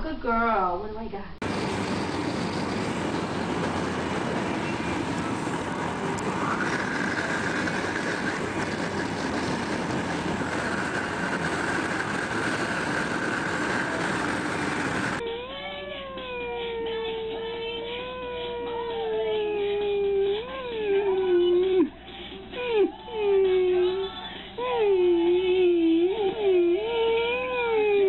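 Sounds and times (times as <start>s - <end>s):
car road noise: 1.4s - 15.2s
wind rushing past car window: 1.4s - 15.2s.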